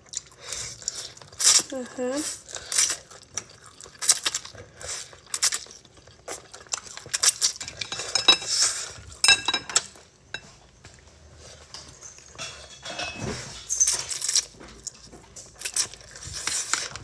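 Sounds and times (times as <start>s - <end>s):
chopsticks tapping ceramic bowls: 7.8s - 8.5s, 9.2s - 10.5s.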